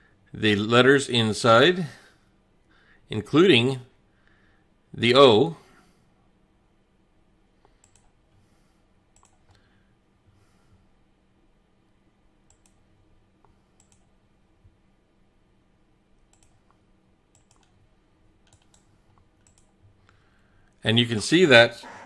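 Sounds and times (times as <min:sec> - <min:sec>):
computer mouse clicks: 0:07.6 - 0:08.2, 0:09.2 - 0:09.6, 0:12.5 - 0:12.8, 0:13.4 - 0:14.1, 0:16.2 - 0:17.8, 0:18.4 - 0:20.2.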